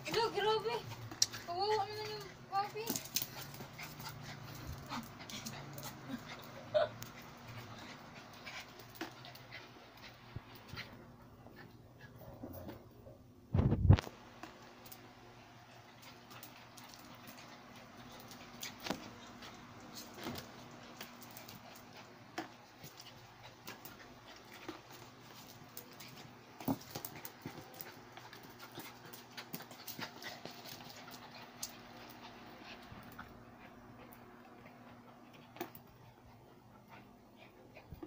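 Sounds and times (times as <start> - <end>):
dogs scuffling: 0.0 - 11.8, 13.6 - 36.2
faint steady hum: 0.0 - 38.0
dog claws clicking on floor: 0.9 - 10.9, 16.0 - 33.3.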